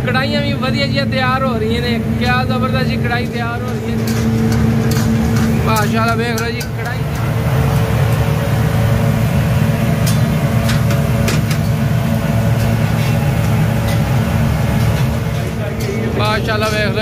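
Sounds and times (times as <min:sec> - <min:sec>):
kitchen cooking station roar: 0:00.0 - 0:17.0
metal utensils clinking: 0:03.2 - 0:08.2, 0:10.0 - 0:17.0.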